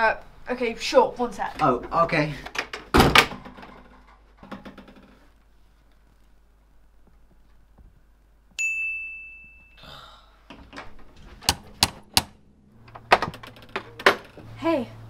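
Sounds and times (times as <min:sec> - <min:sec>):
bright ding: 0:08.6 - 0:10.0.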